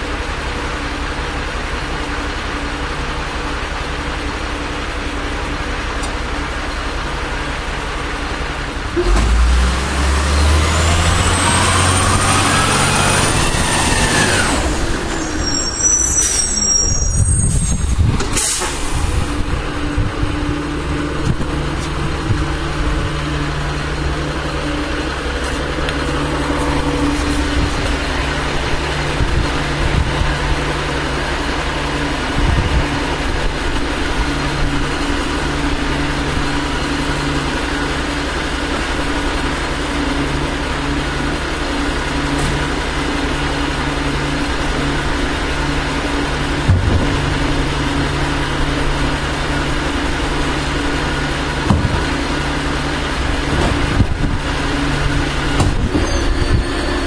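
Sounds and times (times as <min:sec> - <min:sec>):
diesel truck engine: 0:00.0 - 0:57.0
air brake squeal and hiss: 0:14.0 - 0:19.3, 0:56.0 - 0:57.0.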